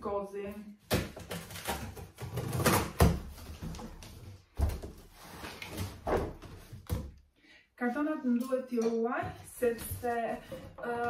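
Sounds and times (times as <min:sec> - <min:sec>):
cardboard scraping and rustling: 0:01.2 - 0:07.0.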